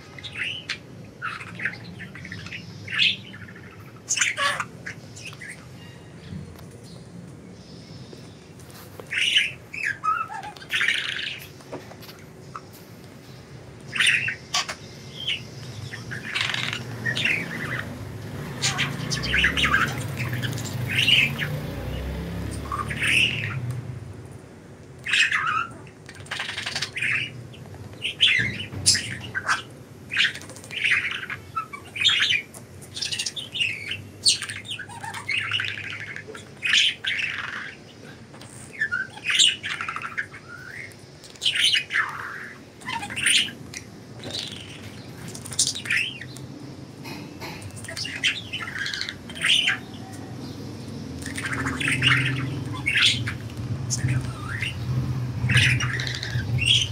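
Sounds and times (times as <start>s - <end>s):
budgerigars chirping and squawking: 0.0s - 23.9s, 25.0s - 56.9s.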